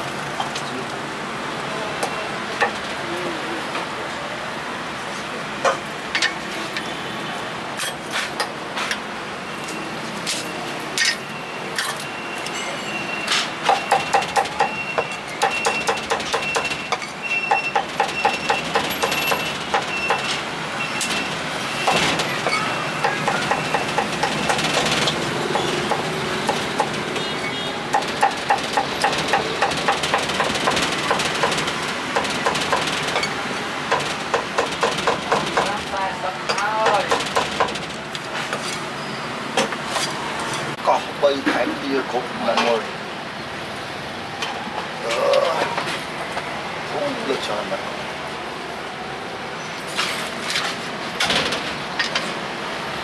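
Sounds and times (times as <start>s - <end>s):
meat cleaver chopping on wood: 21.9s - 27.1s, 27.9s - 33.1s, 33.9s - 35.8s.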